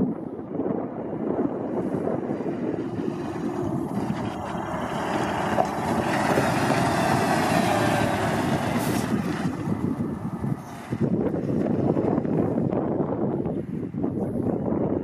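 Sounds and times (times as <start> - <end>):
wind on microphone: 0.0 - 15.0
fire truck diesel engine passing: 1.2 - 12.4.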